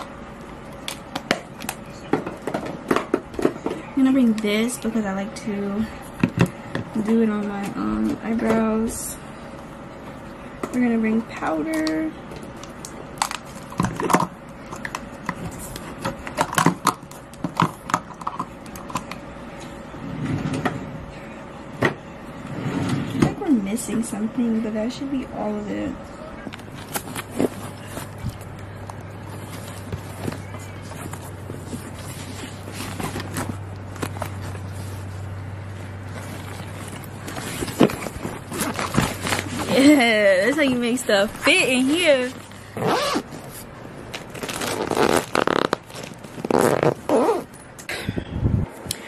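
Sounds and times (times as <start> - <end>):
steady low hum: 0.0 - 49.0
fabric rustling: 29.1 - 47.5.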